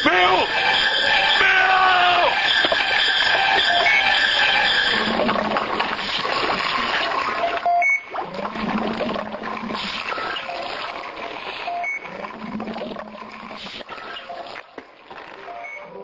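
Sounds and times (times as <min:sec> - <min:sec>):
short beep: 0:00.3 - 0:05.1, 0:07.4 - 0:08.0
water running and splashing: 0:04.4 - 0:15.1.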